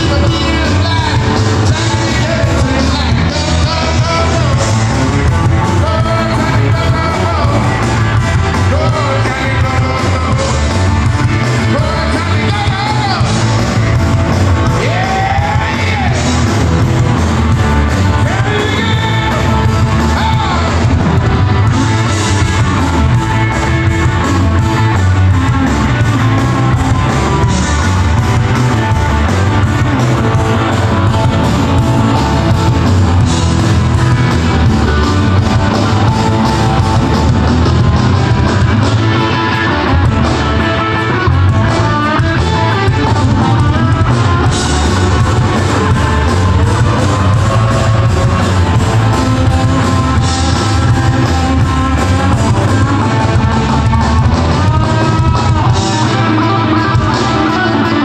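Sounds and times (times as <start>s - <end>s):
person singing: 0.0s - 13.5s, 14.6s - 16.5s, 17.9s - 21.0s, 42.0s - 58.0s
live rock band playing: 0.0s - 58.0s.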